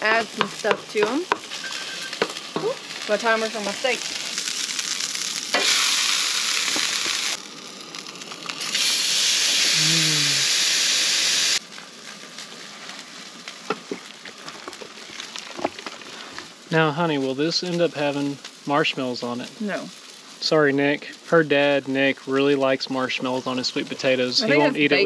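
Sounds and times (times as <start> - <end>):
steaks sizzling in a pan: 0.0 - 16.8.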